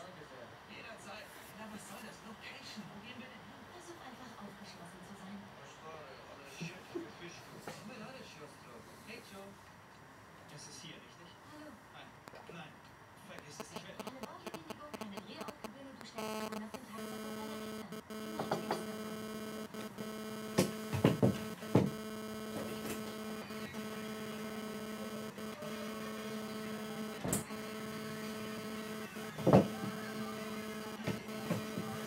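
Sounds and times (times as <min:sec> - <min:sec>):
electrical hum: 0:13.4 - 0:32.0.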